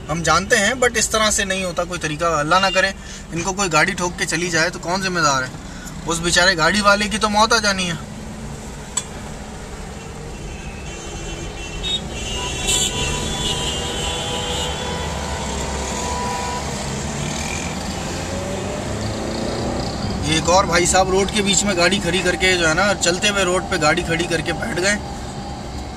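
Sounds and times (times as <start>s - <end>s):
car engine and road rumble: 0.0s - 25.9s
passing vehicles: 0.0s - 25.9s.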